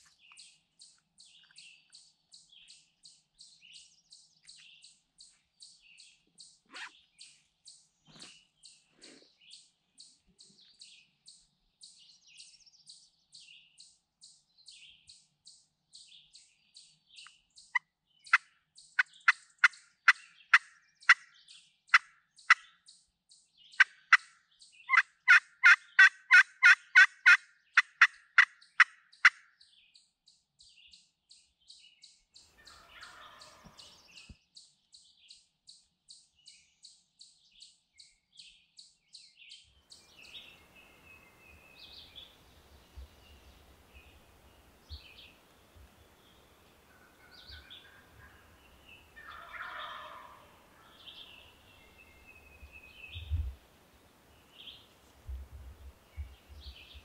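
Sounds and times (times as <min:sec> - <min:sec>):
small bird chirping: 0:00.0 - 0:53.6, 0:54.4 - 0:57.0
turkey call yelps: 0:06.7 - 0:06.9, 0:24.9 - 0:29.4, 0:32.6 - 0:33.8, 0:49.2 - 0:51.0.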